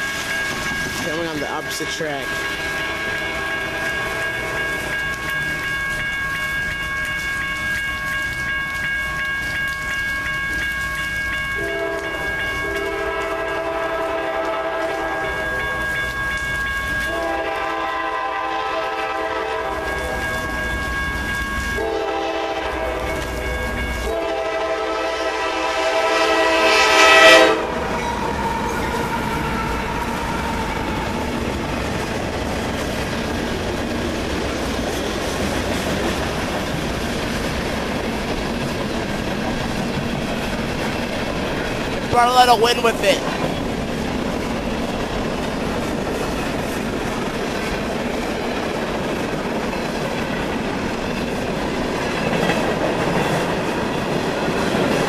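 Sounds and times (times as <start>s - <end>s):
train rumble and wheel clatter: 0.0s - 55.0s
train air horn blasts: 2.2s - 4.9s, 11.6s - 16.1s, 17.0s - 20.6s, 21.8s - 23.2s, 24.0s - 31.2s.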